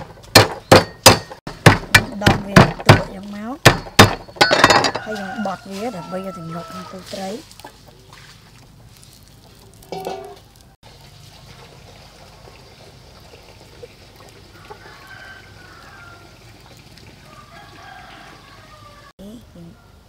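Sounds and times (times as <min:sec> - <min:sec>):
rooster crowing: 0:04.8 - 0:07.2, 0:14.5 - 0:16.5, 0:17.2 - 0:19.2
chickens calling: 0:06.0 - 0:10.7.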